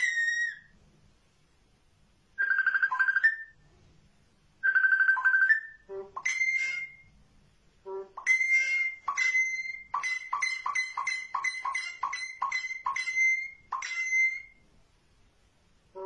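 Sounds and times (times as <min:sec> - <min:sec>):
bird mimicking phone ringtone: 0:00.0 - 0:00.7, 0:02.4 - 0:03.6, 0:04.6 - 0:07.1, 0:08.2 - 0:14.6.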